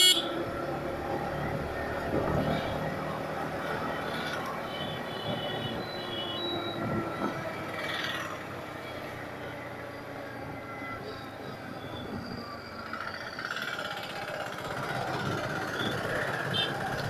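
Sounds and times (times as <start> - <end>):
wind and road noise: 0.0 - 17.0
motorcycle engine cruising: 6.5 - 17.0.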